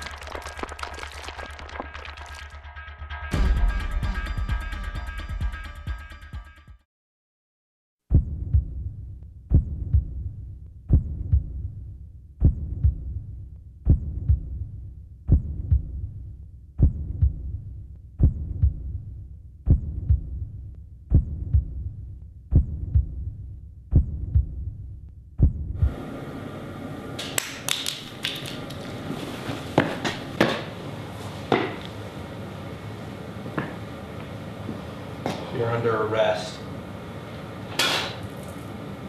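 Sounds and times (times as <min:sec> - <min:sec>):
heartbeat double thump: 0:08.1 - 0:11.8, 0:12.4 - 0:14.7, 0:15.3 - 0:16.1, 0:16.8 - 0:19.0, 0:19.6 - 0:26.0
low hum: 0:08.1 - 0:27.2
room noise: 0:25.6 - 0:39.0.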